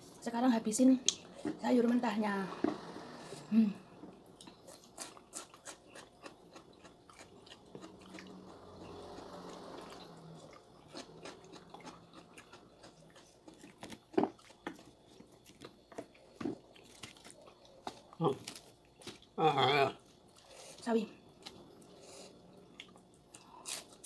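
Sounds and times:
crunchy chewing of raw vegetables: 4.3 - 19.4, 20.0 - 24.0.

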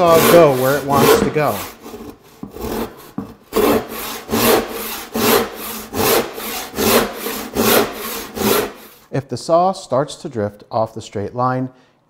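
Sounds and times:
hand saw cutting a board: 0.0 - 9.0.

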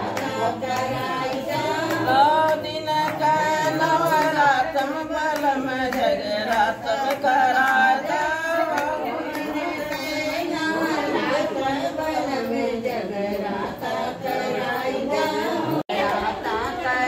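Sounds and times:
hand-clapping: 0.0 - 11.4
women singing together: 0.0 - 17.0.

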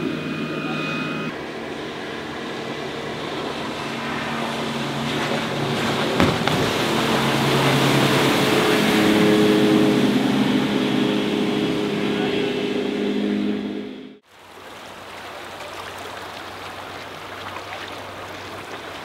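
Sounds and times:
boat engine running at speed: 0.0 - 19.0
hull rushing through water: 0.0 - 19.0
knock: 6.2 - 6.7.

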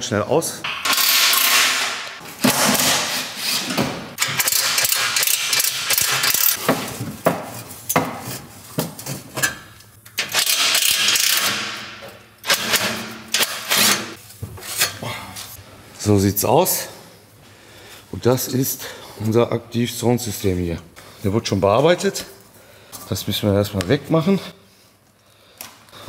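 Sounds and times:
ratchet tool whirring: 4.2 - 6.6, 10.2 - 11.6.

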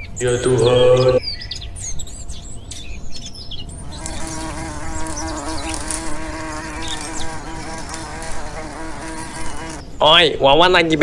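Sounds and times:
insect wings buzzing: 3.8 - 9.8.

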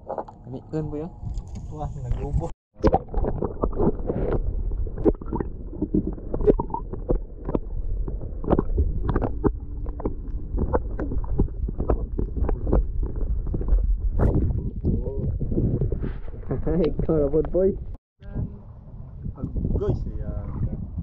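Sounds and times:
underwater rumble of moving water: 0.0 - 21.0
bubbling clicks and knocks: 1.2 - 18.0.

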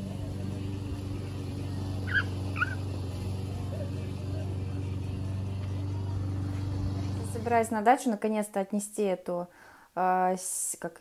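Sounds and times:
mower engine humming: 0.0 - 7.9
small dog yipping: 2.0 - 2.8.

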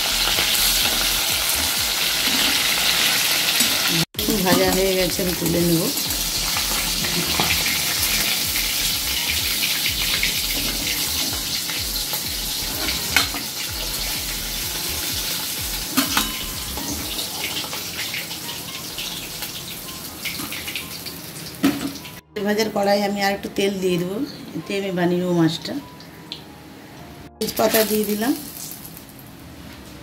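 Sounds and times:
fish sizzling in hot oil: 0.0 - 22.2, 27.5 - 29.2.

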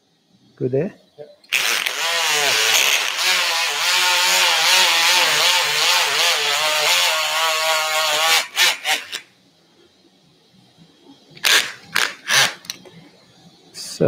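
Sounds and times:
bone saw buzzing whine: 1.5 - 9.3, 11.4 - 12.8.

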